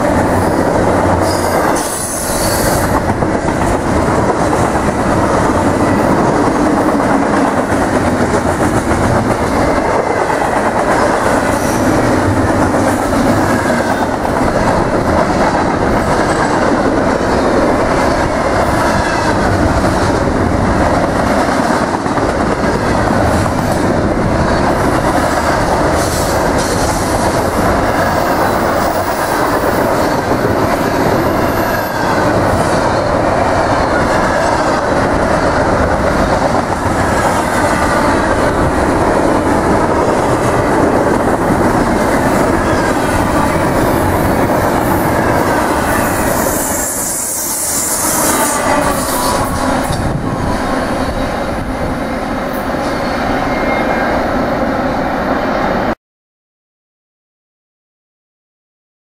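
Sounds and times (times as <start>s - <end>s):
freight train wheels rumbling on rail: 0.0s - 56.0s.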